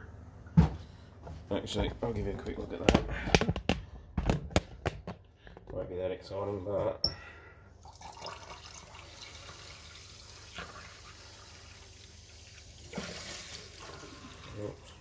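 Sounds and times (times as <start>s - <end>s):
tap water running into container: 7.8s - 15.0s
water frothing and spilling: 8.0s - 15.0s.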